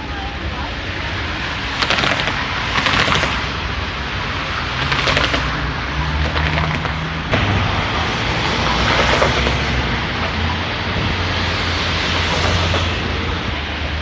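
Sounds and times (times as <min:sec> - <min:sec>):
tram motor hum: 0:00.0 - 0:14.0
rapid crackling clicks: 0:01.8 - 0:03.5, 0:04.8 - 0:05.6, 0:06.2 - 0:07.0.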